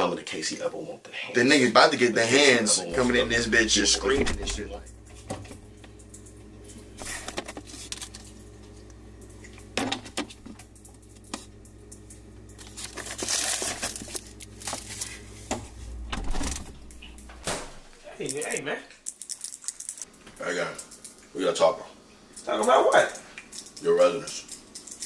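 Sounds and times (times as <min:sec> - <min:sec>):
refrigerator low hum: 0:02.2 - 0:25.0
packaging crinkling and rustling: 0:07.0 - 0:08.5, 0:12.6 - 0:15.3.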